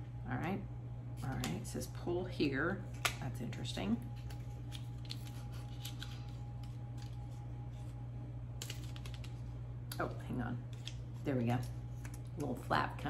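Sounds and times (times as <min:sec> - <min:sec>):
steady low hum: 0:00.0 - 0:13.0
paper packaging rustling: 0:04.2 - 0:08.0, 0:08.6 - 0:09.5.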